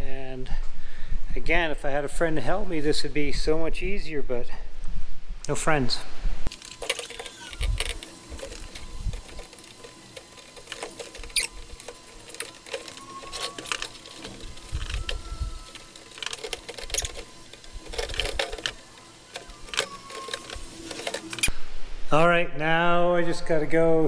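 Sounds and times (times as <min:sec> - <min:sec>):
metal roof rack feet clicking: 0:06.6 - 0:21.5.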